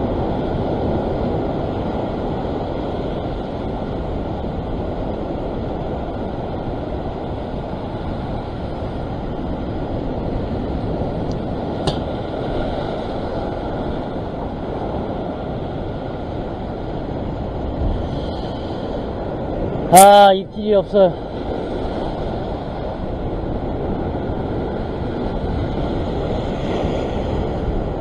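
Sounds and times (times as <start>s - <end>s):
ocean surf breaking on rocks: 0.0s - 28.0s
wind buffeting microphone: 0.0s - 28.0s
sharp click: 11.8s - 12.1s.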